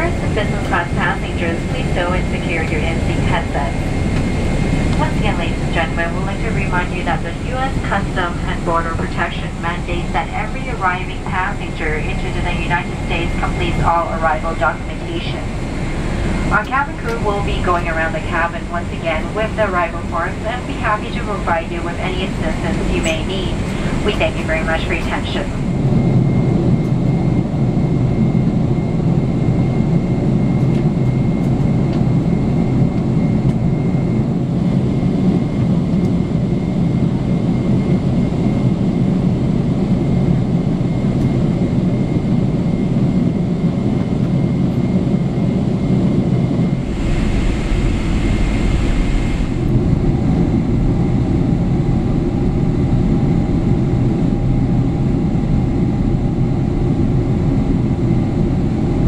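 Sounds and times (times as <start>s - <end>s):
hiss and deep rumble: 0.0s - 59.0s
jet engine hum: 0.0s - 59.0s
airflow rushing: 15.4s - 16.7s, 46.4s - 52.0s.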